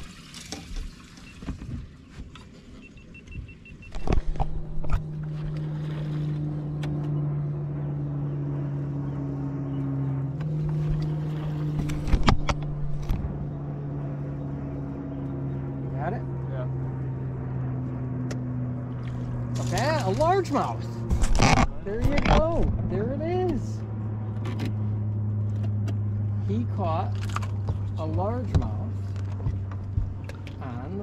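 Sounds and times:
knocks and clatter on boat: 0:00.0 - 0:07.2, 0:10.4 - 0:13.4, 0:21.0 - 0:22.9, 0:27.2 - 0:30.8
boat motor running: 0:00.0 - 0:31.0.

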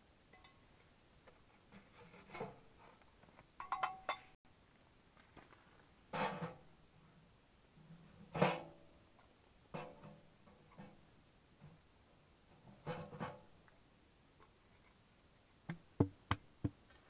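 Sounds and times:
metal clanking scrape: 0:01.7 - 0:03.0.

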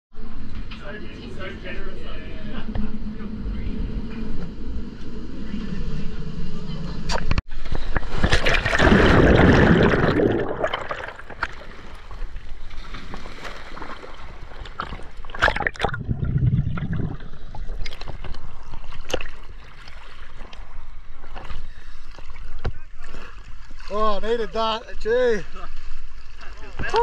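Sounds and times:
water splashing and sloshing: 0:07.1 - 0:27.0.

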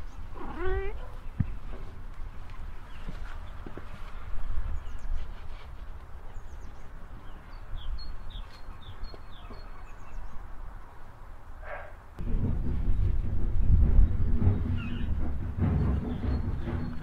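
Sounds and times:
bird chirping: 0:06.2 - 0:10.5, 0:12.8 - 0:17.0
steady low rumble: 0:11.4 - 0:17.0
louder low rumble: 0:12.2 - 0:17.0.

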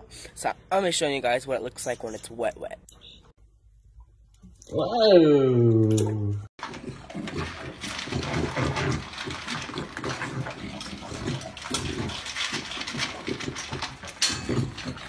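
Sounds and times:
puppy crunching kibble in metal bowl: 0:06.6 - 0:15.0.

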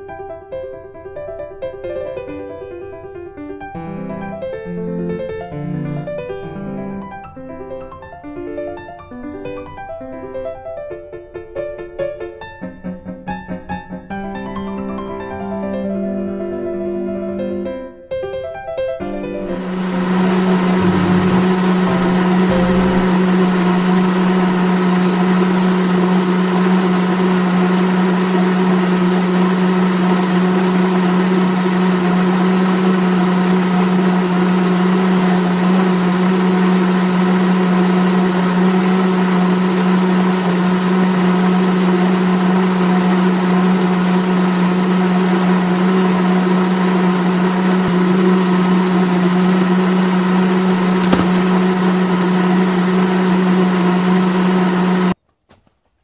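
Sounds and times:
small electric motor humming: 0:19.5 - 0:26.7.

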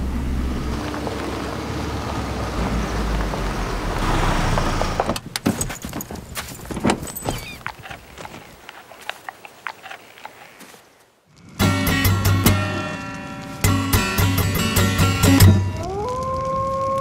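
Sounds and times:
car engine and road rumble: 0:00.0 - 0:09.0
sharp clicks and crunches: 0:05.0 - 0:10.6.

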